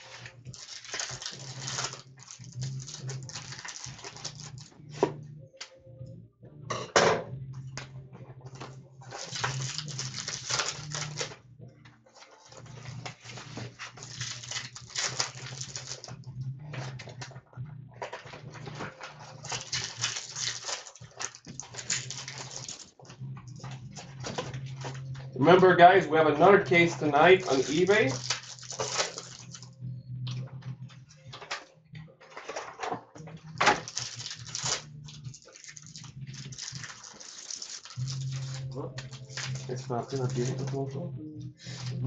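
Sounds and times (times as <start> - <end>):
crinkling card pack wrappers: 0.0 - 4.8, 8.6 - 11.4, 12.2 - 16.2, 18.1 - 23.0, 26.8 - 29.7, 33.6 - 40.8
cards shuffling: 0.0 - 5.1, 8.6 - 11.4, 12.2 - 16.2, 18.1 - 22.9, 27.2 - 29.7, 33.6 - 40.8.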